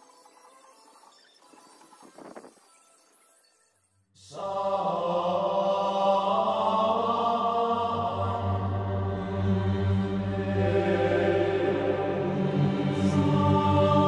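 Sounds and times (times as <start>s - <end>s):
low drone: 4.3s - 14.0s
sustained music chords: 4.4s - 14.0s.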